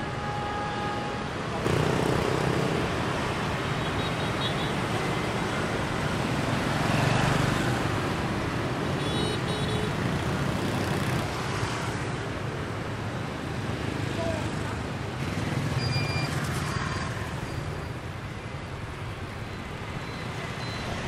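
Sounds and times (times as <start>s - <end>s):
scooters and motorbikes passing: 1.6s - 12.2s, 13.4s - 17.8s.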